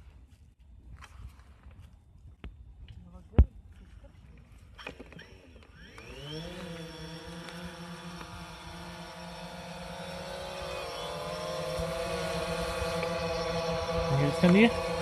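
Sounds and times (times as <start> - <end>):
drone propellers buzzing: 4.8 - 15.0.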